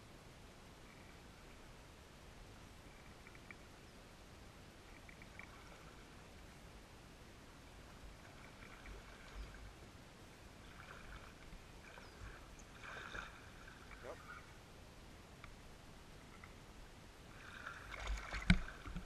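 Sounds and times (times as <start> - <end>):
shallow water sloshing: 7.9 - 9.8, 10.5 - 14.5, 17.3 - 19.0.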